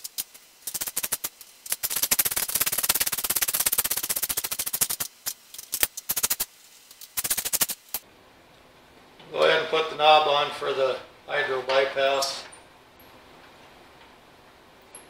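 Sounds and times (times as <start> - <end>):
ratchet wrench clicking: 0.0 - 8.0.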